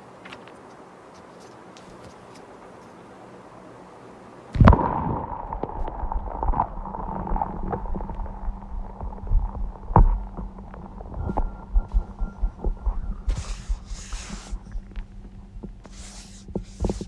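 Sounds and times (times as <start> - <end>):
steady hum: 0.0 - 17.0
crackles: 4.5 - 17.0
low thumps: 4.6 - 17.0
faint hiss: 13.1 - 17.0.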